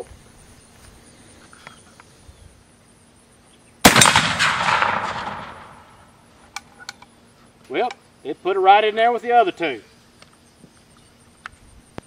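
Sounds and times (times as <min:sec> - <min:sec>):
rifle shot echoing: 0:03.8 - 0:06.2.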